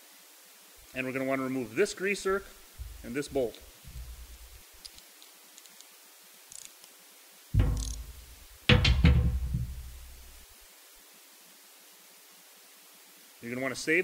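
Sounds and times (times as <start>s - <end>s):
heavy metallic knocks: 2.8s - 4.6s, 7.6s - 10.4s.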